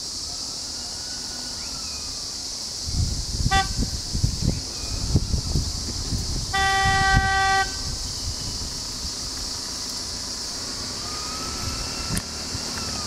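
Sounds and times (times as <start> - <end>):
passing traffic engines: 0.0 - 13.0
steady high hiss: 0.0 - 13.0
vehicle horn honk: 3.5 - 3.9, 6.5 - 7.9.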